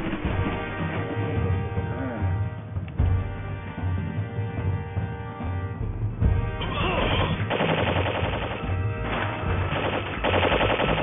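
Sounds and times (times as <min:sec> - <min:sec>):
background music: 0:00.0 - 0:11.0
automatic gunfire bursts: 0:07.5 - 0:08.7, 0:09.7 - 0:11.0.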